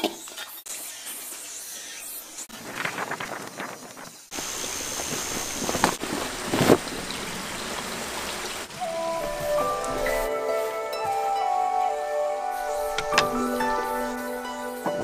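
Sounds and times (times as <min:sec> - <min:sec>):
music with held tones: 0:08.8 - 0:15.0.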